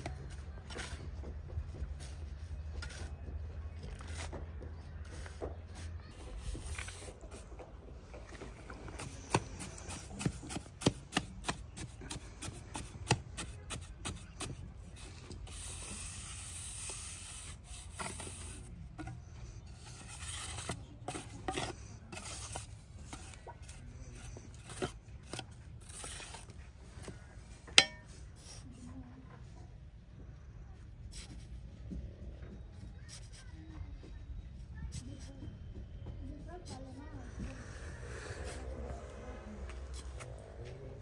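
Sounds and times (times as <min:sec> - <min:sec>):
trowel scraping cement mix: 0:08.5 - 0:28.6.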